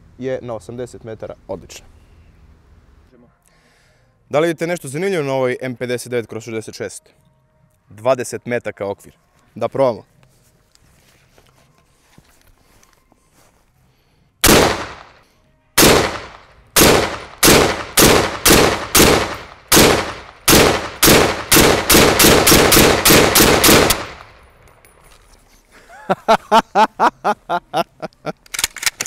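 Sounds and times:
rifle shots: 0:14.4 - 0:15.2, 0:15.8 - 0:24.5.

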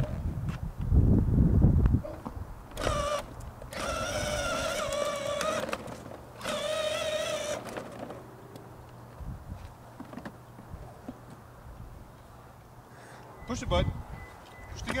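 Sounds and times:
toy car motor whining: 0:02.8 - 0:08.1.

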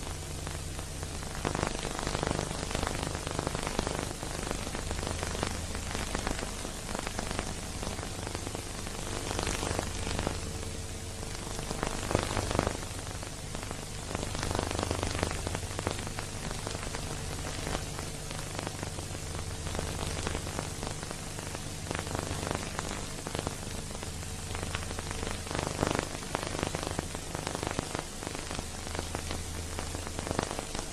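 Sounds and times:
film surface crackling hiss: 0:00.0 - 0:30.9.

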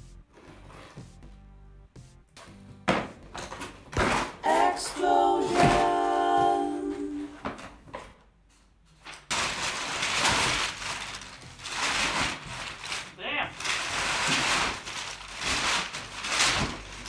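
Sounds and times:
short sung phrase: 0:04.4 - 0:07.4
packing paper crinkling: 0:09.0 - 0:17.0.

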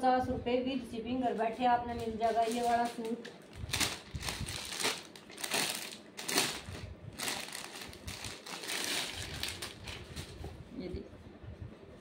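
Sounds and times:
plastic packaging crinkling: 0:02.0 - 0:10.4.

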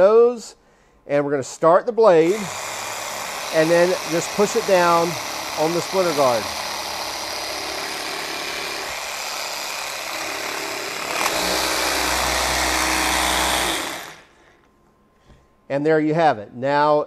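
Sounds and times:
jigsaw cutting plastic: 0:02.3 - 0:14.3.

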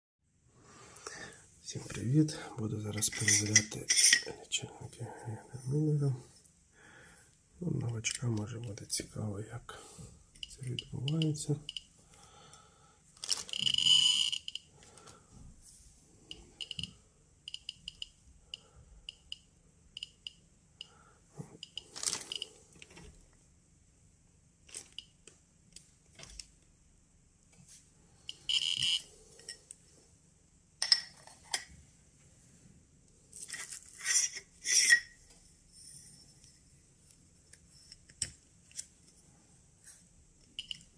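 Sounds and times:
metal tubes clicking: 0:03.0 - 0:04.3, 0:13.2 - 0:14.6, 0:28.3 - 0:29.7, 0:33.5 - 0:35.2, 0:40.6 - 0:40.9
plastic bag crinkling: 0:13.2 - 0:14.3, 0:21.8 - 0:22.6
geiger counter beeps: 0:13.5 - 0:14.7, 0:16.3 - 0:20.4, 0:28.3 - 0:29.1.

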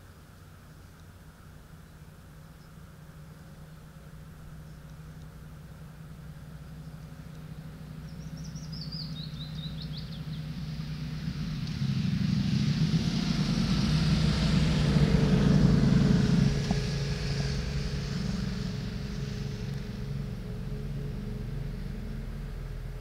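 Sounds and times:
vehicle engine rumble passing: 0:00.0 - 0:23.0
bird trill: 0:08.0 - 0:10.5.

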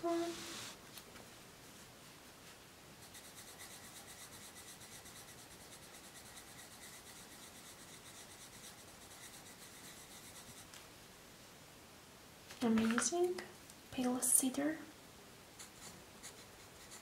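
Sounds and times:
pencil rubbing on paper: 0:03.0 - 0:10.7, 0:15.6 - 0:17.0.

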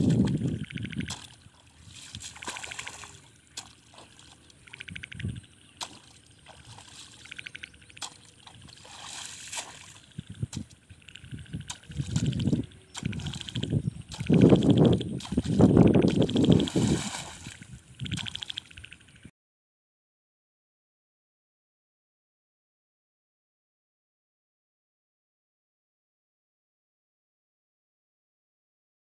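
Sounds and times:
hoe chopping wet mud: 0:00.0 - 0:04.4, 0:05.8 - 0:10.7, 0:11.6 - 0:18.5
water sloshing and splashing: 0:00.0 - 0:19.1.

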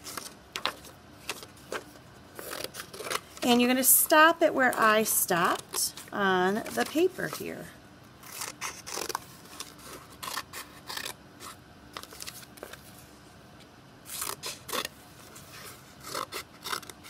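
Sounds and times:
scissors snipping paper: 0:08.2 - 0:12.4, 0:16.0 - 0:17.0.

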